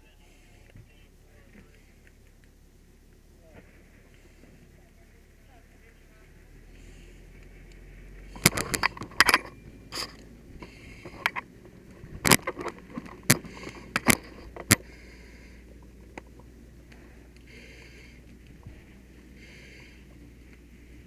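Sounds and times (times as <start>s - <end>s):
gear clicks and knocks: 8.3s - 14.9s.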